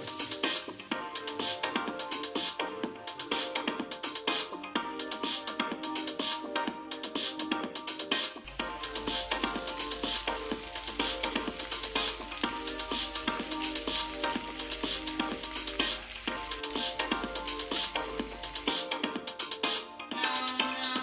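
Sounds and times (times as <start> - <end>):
sandwiches sizzling on a grill: 0.0 - 1.0, 8.5 - 18.8
background music: 0.0 - 21.0.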